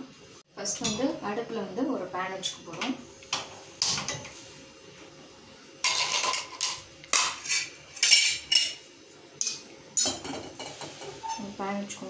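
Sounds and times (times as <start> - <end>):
metal pan scraping on burner grate: 10.5 - 11.6.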